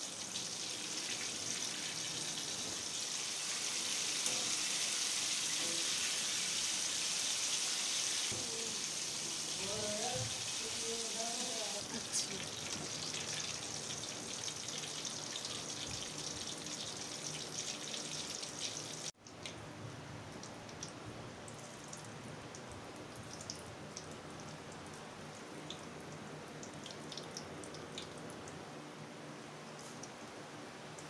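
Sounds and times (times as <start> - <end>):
oil sizzling and crackling: 0.0 - 19.6.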